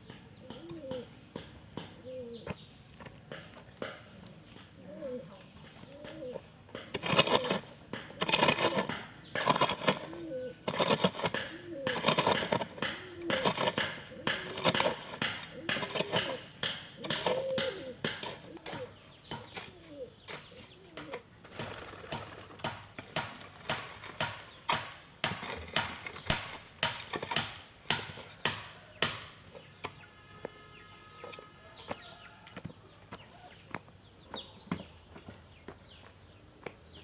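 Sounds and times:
scraping and shuffling: 5.2 - 24.3
hoe chopping into earth: 6.0 - 19.7, 20.3 - 29.4.

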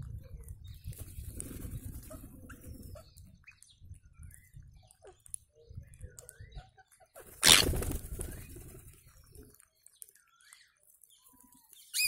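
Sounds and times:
rustling of wings and feet: 0.6 - 2.9, 7.2 - 12.0
parakeet squeaky calls: 7.4 - 7.7.

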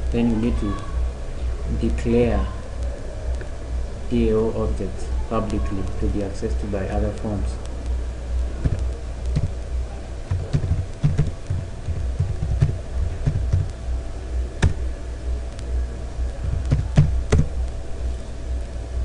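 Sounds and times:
steady low hum: 0.0 - 19.0
computer keyboard typing: 8.6 - 9.6, 10.2 - 13.7, 16.4 - 17.5.

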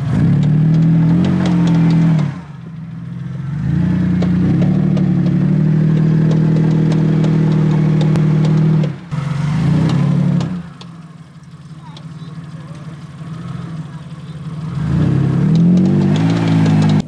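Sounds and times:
car engine revving hard: 0.0 - 11.0, 11.8 - 17.0
sharp clicks and clatter: 0.2 - 2.9, 4.2 - 9.0, 15.4 - 17.0.

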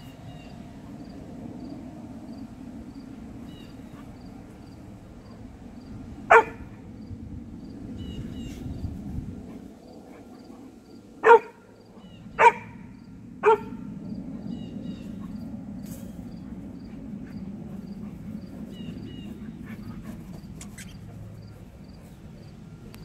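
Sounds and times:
dog barking deeply: 6.3 - 6.7, 11.2 - 11.6, 12.4 - 12.8, 13.4 - 13.9.

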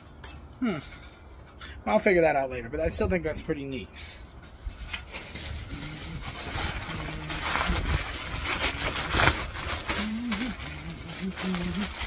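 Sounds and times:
plastic packaging rustling: 4.7 - 12.0.

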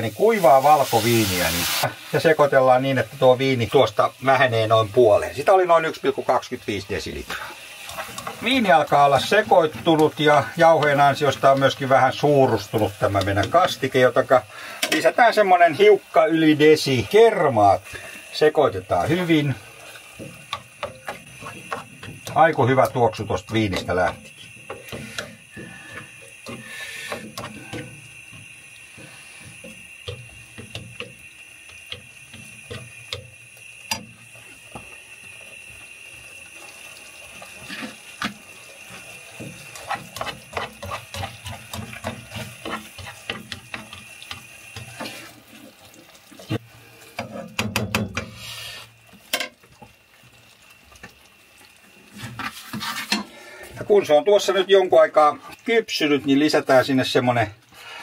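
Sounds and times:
steady hiss: 0.0 - 58.0
fork scraping frying pan: 7.8 - 8.5, 19.9 - 22.4, 23.7 - 28.1, 37.5 - 38.3, 38.9 - 45.4, 52.2 - 53.4.

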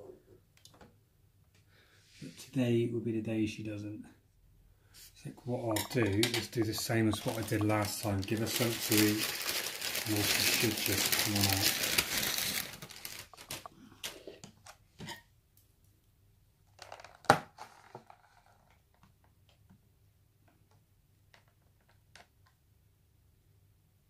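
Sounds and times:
plastic tubs and lids handled: 5.7 - 14.8.

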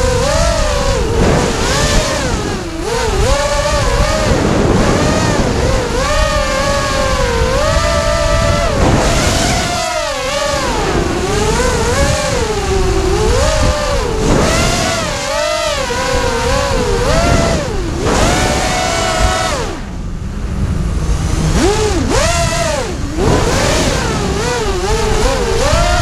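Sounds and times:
quadcopter motors whining: 0.0 - 26.0
wind rumble on microphone: 0.0 - 26.0.

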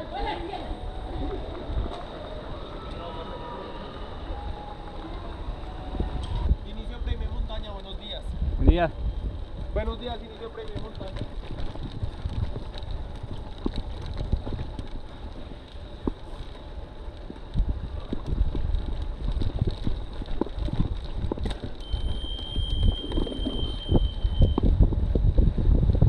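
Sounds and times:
wind buffeting camera: 0.0 - 3.2, 3.9 - 26.0
low tyre rumble: 0.0 - 26.0
bike rattles and knocks: 9.2 - 26.0.

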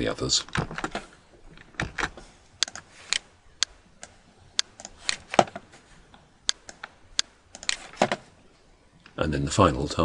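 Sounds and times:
keyboard and mouse clicking: 1.6 - 5.7, 6.4 - 8.2.

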